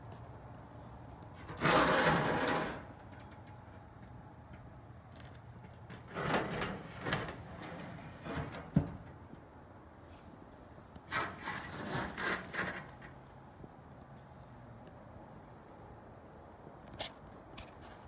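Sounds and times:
rubbing and scraping on concrete: 1.4 - 3.0, 11.1 - 13.2.

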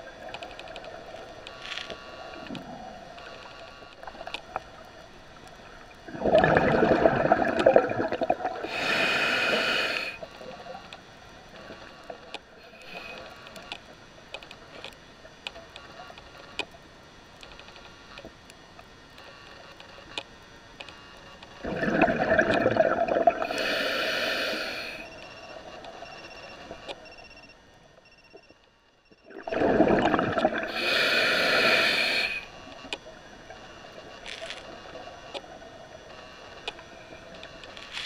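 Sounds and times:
bubbling: 5.9 - 9.3, 21.6 - 23.8, 29.2 - 32.4
diver breathing through regulator: 8.6 - 10.2, 21.7 - 25.1, 29.5 - 32.5.

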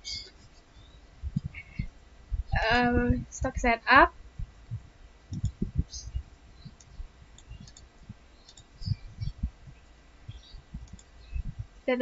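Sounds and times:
soft low thumps: 0.1 - 12.0
computer mouse clicks: 5.3 - 5.6, 6.6 - 9.4, 10.3 - 11.2.

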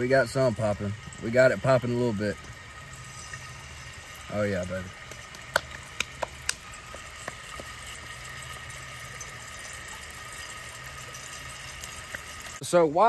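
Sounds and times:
oil spitting pops: 2.4 - 12.4
meat sizzling in oil: 2.4 - 12.6.

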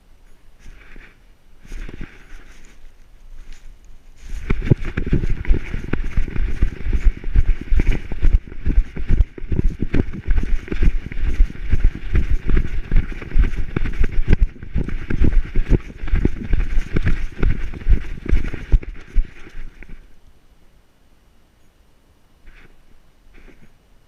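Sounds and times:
dog running strides thumping: 4.4 - 19.9.

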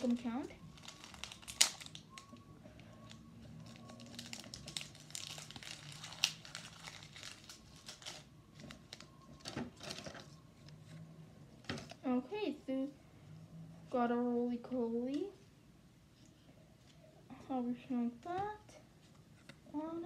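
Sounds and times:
foil wrapper ripping: 0.0 - 2.2, 3.1 - 8.3
foil wrapper crinkling: 0.0 - 2.3, 3.0 - 10.2.

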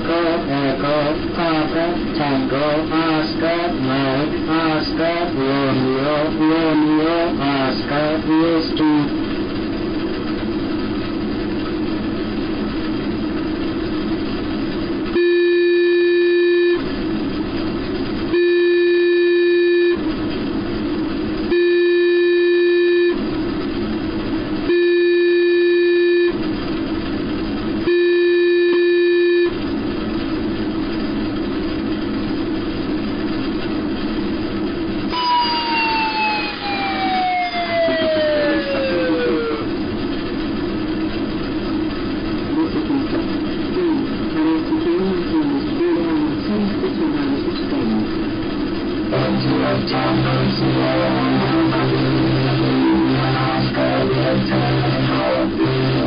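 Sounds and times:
humming noise: 0.0 - 56.0
long electronic beeps: 15.2 - 16.8, 18.3 - 20.1, 21.5 - 23.2, 24.7 - 26.4, 27.9 - 29.6, 35.1 - 39.7, 49.1 - 56.0
tone sliding down in pitch: 35.1 - 39.7, 49.2 - 56.0.

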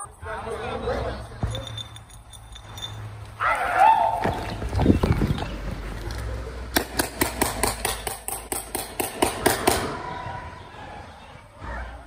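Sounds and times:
paintball gun firing rapidly: 6.8 - 9.9.

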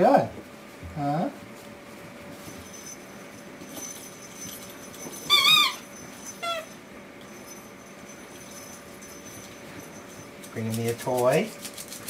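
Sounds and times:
puppy yelping: 5.3 - 6.7.

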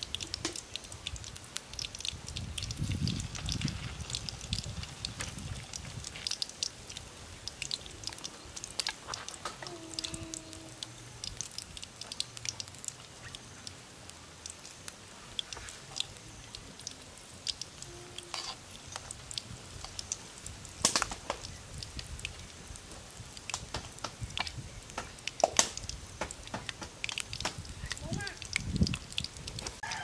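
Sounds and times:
oil crackling and popping: 0.0 - 30.0.

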